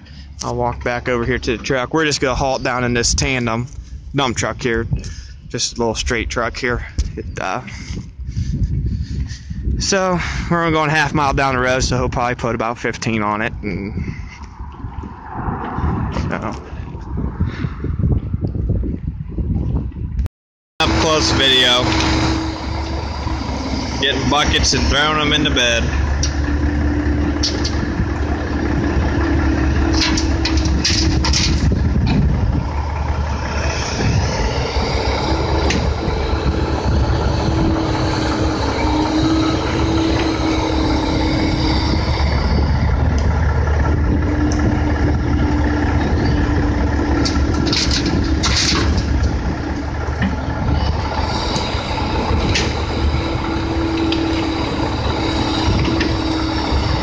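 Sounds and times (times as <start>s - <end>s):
excavator diesel engine: 0.0s - 5.5s, 20.8s - 57.0s.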